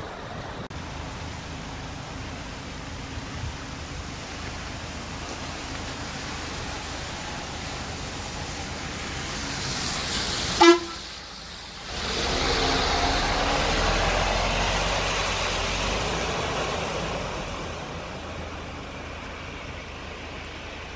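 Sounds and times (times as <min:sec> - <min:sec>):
bus engine rumble: 0:00.0 - 0:20.9
tyres washing through water: 0:00.0 - 0:20.9
vehicle horn honk: 0:10.6 - 0:11.0.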